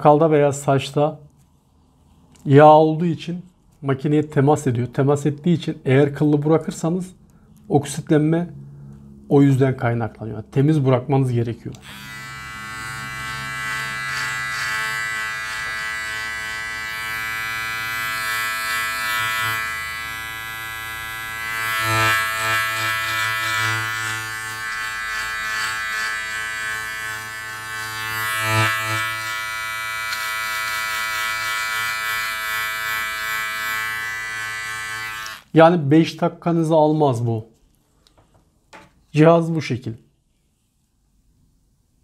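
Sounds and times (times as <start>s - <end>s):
beard trimmer buzzing: 11.8s - 35.5s.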